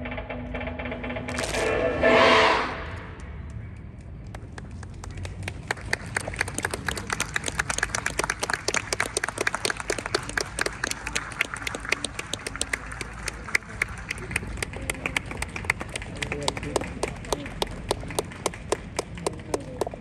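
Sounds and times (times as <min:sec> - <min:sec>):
audience applauding: 0:04.3 - 0:20.0.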